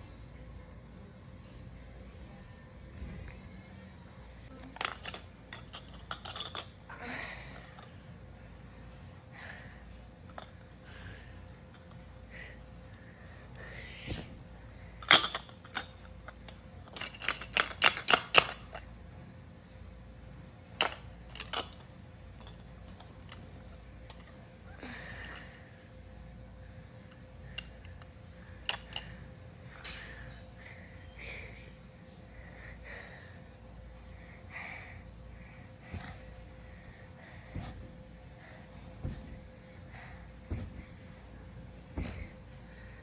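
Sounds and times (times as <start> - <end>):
plastic toy pieces clacking: 4.6 - 6.8, 15.0 - 18.8, 20.8 - 21.8, 27.6 - 29.1.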